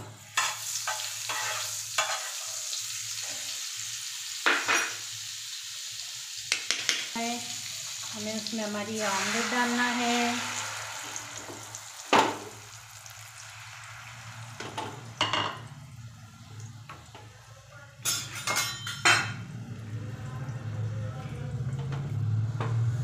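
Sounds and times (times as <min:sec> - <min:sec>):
omelette sizzling in pan: 0:00.0 - 0:17.3
metal clinks of pan and utensils: 0:18.0 - 0:19.4.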